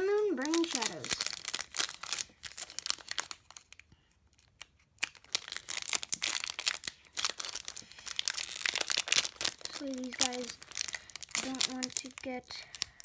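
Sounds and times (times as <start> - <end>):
foil wrapper crinkling: 0.0 - 13.0.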